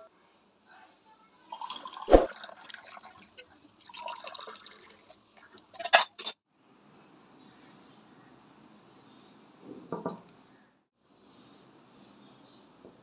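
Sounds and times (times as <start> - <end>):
liquid pouring into a mug: 1.5 - 5.7.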